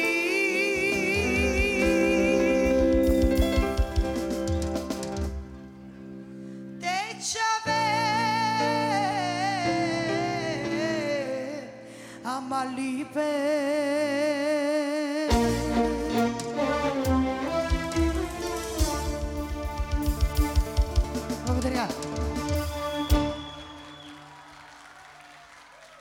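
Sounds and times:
woman singing with vibrato: 0.0 - 3.4, 6.8 - 15.6
drums and band playing: 0.8 - 5.7, 15.3 - 24.1.

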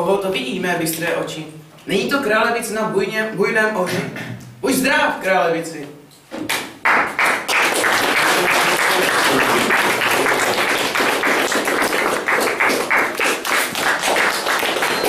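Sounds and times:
audience applauding: 6.8 - 15.0.

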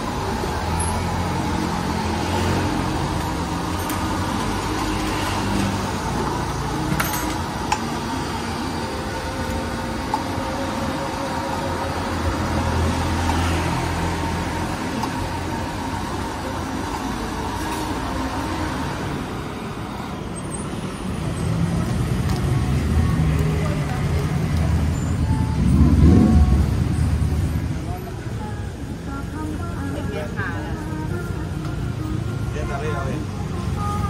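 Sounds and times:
street traffic noise: 0.0 - 34.0
low engine hum: 21.1 - 32.6.

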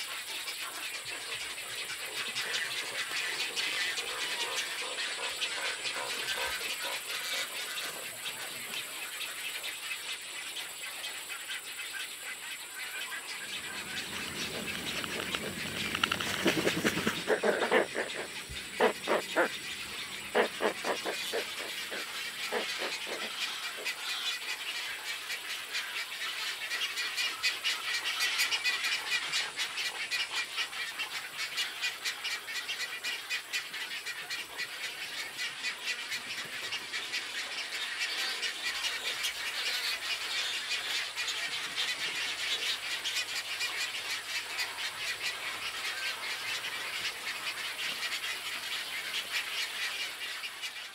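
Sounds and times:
many birds calling: 0.0 - 50.9
chattering and clicking bird calls: 0.1 - 50.9
loud low bird croaks: 13.4 - 23.9.

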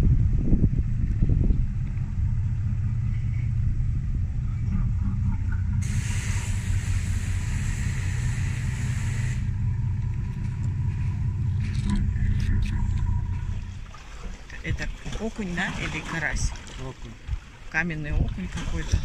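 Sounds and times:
boat engine low rumble: 0.0 - 19.0
hiss: 5.8 - 9.5.

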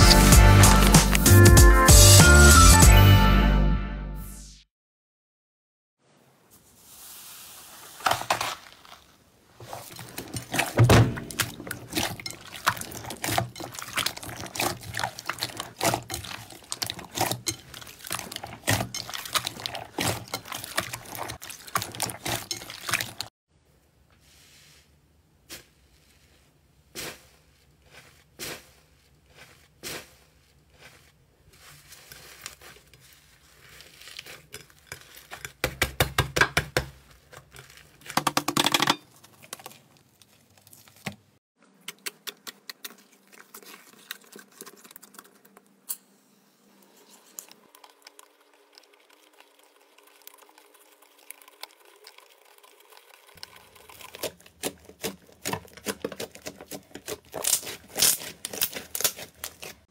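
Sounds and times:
slime crackling and popping: 53.9 - 59.8.

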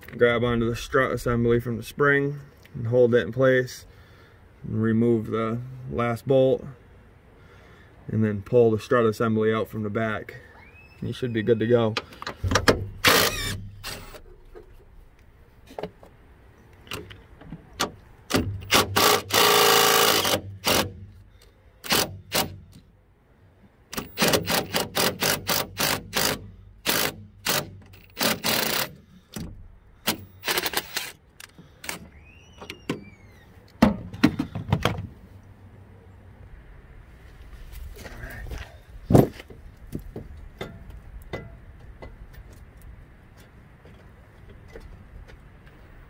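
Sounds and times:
impact wrench hammering: 24.0 - 31.0.

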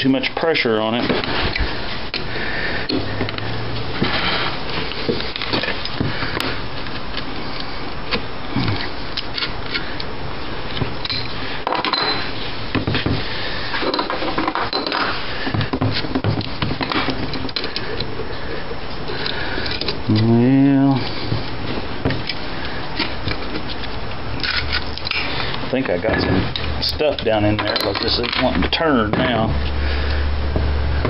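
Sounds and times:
wrench clicking and scraping metal: 26.5 - 28.6.

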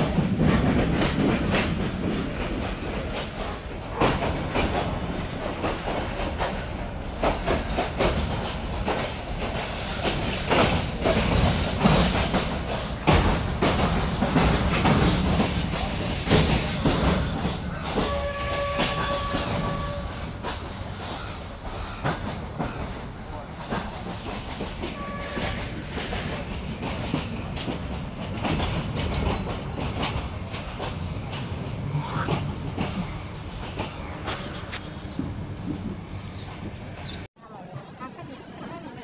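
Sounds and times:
train wheels clacking: 0.0 - 37.3
train rumbling: 0.0 - 39.0
train horn blast: 18.0 - 20.4, 24.9 - 25.8.

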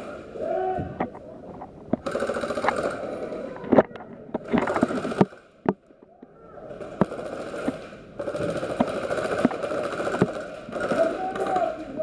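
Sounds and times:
airsoft guns full-auto fire: 2.0 - 3.4, 4.5 - 5.5, 6.7 - 12.0.

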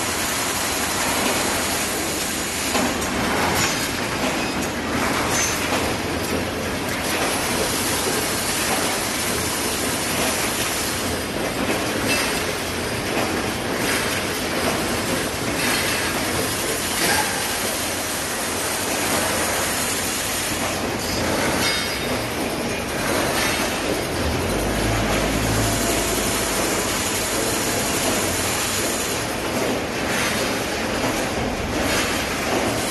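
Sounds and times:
welding machine clattering: 0.0 - 32.9.

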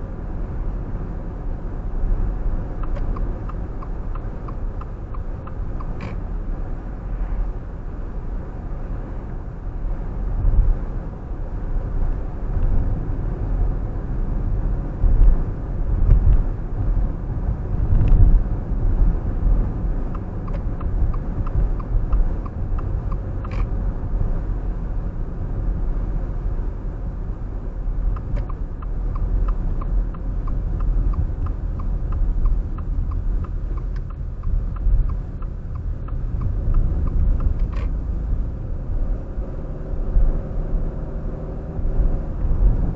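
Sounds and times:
road and engine rumble: 0.0 - 42.9
turn signal ticking: 2.1 - 6.6, 15.0 - 39.5.

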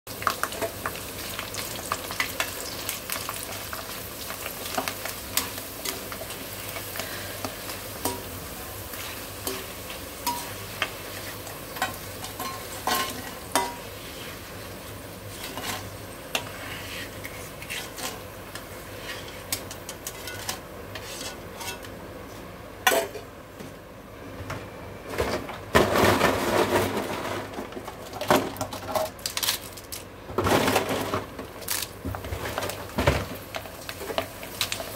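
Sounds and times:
chips sizzling in hot oil: 0.1 - 20.4, 31.6 - 34.9
metal skimmer scraping pan: 15.3 - 18.2, 18.9 - 21.9.

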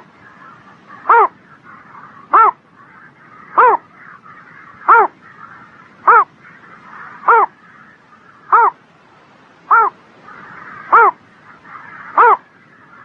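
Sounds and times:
bittern calling: 0.0 - 8.8, 9.7 - 13.0
faint background noise: 0.0 - 13.0.

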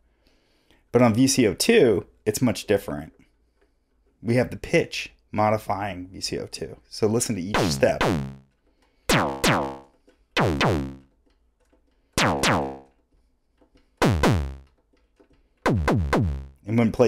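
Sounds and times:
pitched electronic percussion hits: 7.6 - 8.4, 9.1 - 11.0, 12.2 - 12.9, 14.0 - 14.7, 15.6 - 16.6.

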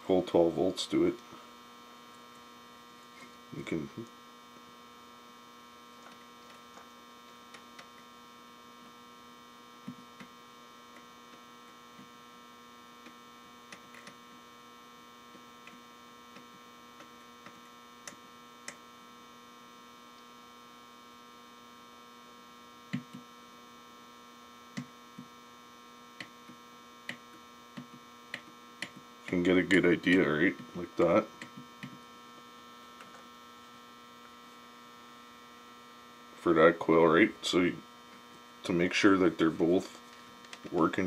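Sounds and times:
faint electrical hum: 0.0 - 41.0
wires clicking on battery terminal: 13.0 - 14.3, 15.3 - 18.9, 22.9 - 23.3.

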